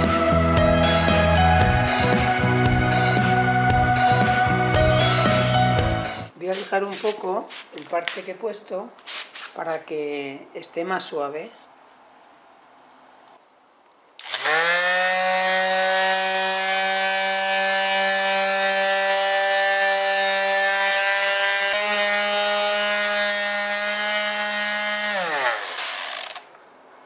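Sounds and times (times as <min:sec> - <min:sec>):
electric sander running: 0:14.2 - 0:26.5.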